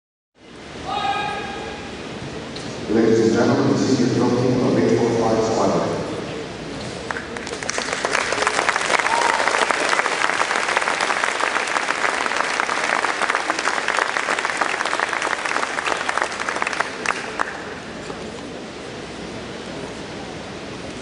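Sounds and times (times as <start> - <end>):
audience applauding: 7.0 - 17.9.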